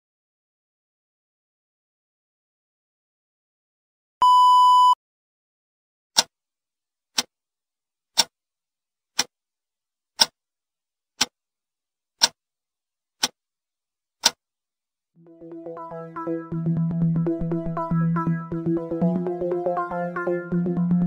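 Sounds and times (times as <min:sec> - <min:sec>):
test-tone beep: 0:04.2 - 0:05.0
clock ticking: 0:10.2 - 0:10.4.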